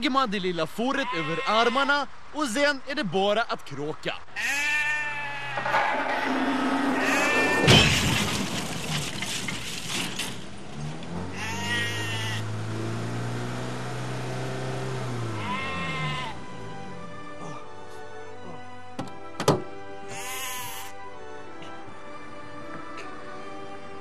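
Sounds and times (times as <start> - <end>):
sheep bleating: 0.9 - 2.0, 4.4 - 5.7, 7.0 - 7.7, 11.3 - 12.5, 15.3 - 16.4, 20.1 - 21.0
crash impact: 5.6 - 10.6
clatter: 5.6 - 11.0.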